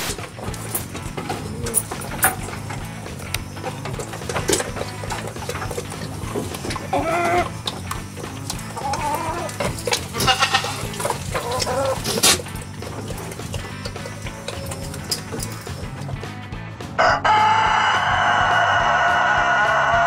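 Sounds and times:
hen clucking: 0:00.4 - 0:16.3
goats bleating: 0:00.5 - 0:16.2.

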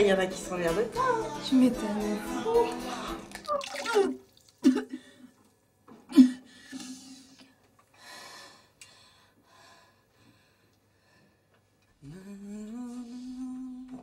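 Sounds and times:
woman retching: 0:03.3 - 0:05.1.

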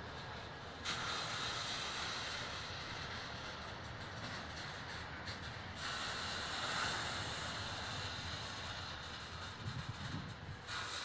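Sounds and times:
freight train wheels on rails: 0:00.0 - 0:11.0.

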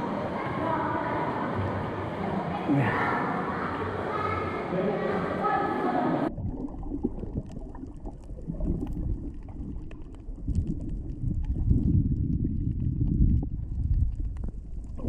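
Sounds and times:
muffled underwater rumble: 0:06.2 - 0:15.0
faint crackling clicks: 0:07.1 - 0:15.0.

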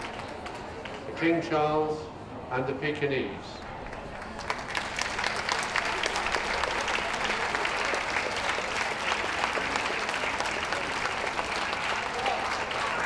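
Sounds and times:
crowd applauding: 0:00.0 - 0:01.1, 0:03.8 - 0:13.0.

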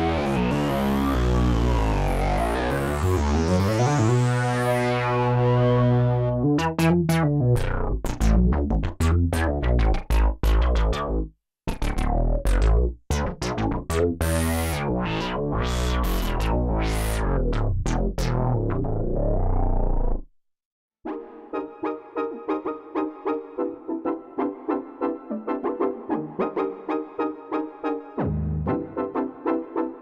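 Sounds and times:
analog synthesizer playing: 0:00.0 - 0:09.5
plucky synthesizer notes: 0:00.0 - 0:20.3.

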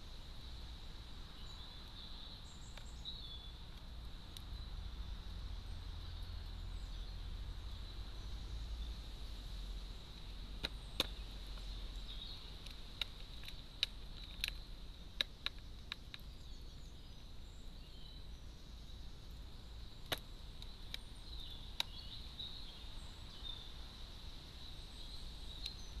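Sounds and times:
crow beak tapping: 0:10.6 - 0:16.3, 0:20.0 - 0:22.1.

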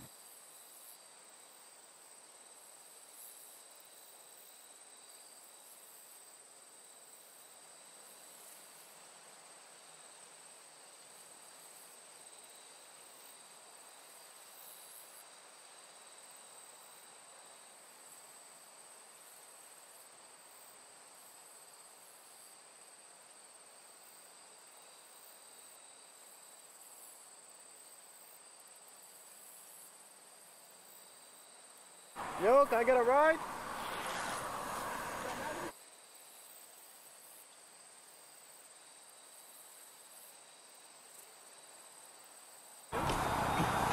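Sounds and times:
lower insect trill: 0:00.0 - 0:32.4, 0:33.4 - 0:43.9
insects trilling high: 0:32.2 - 0:35.7
low hiss: 0:32.2 - 0:35.7.

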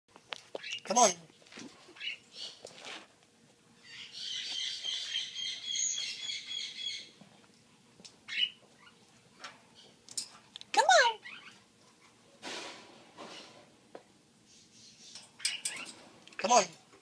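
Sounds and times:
parrot chirps and trills: 0:00.6 - 0:00.9, 0:01.9 - 0:02.6, 0:03.8 - 0:07.2, 0:08.3 - 0:09.0, 0:11.0 - 0:11.7, 0:14.5 - 0:16.0.

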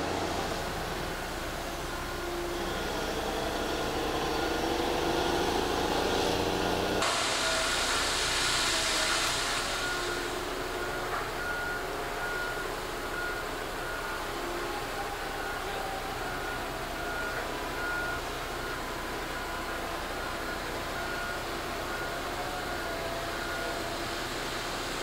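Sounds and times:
reversing beeper: 0:00.0 - 0:24.6
machine engine and hydraulics: 0:00.0 - 0:25.0.

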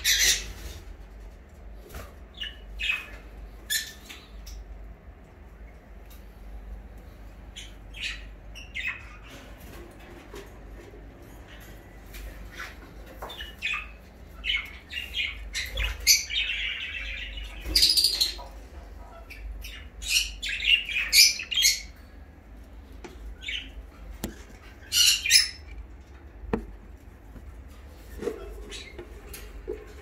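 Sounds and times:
budgerigars chirping and squawking: 0:00.0 - 0:00.8, 0:01.9 - 0:04.6, 0:07.5 - 0:10.3, 0:11.3 - 0:22.2, 0:23.2 - 0:26.0, 0:27.7 - 0:30.0.

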